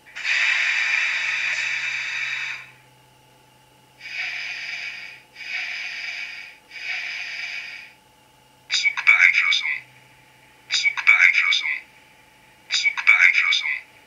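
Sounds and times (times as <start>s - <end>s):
faint steady hum: 0.0s - 14.0s
compressed-air hiss from small speaker: 0.1s - 2.8s, 4.0s - 8.0s.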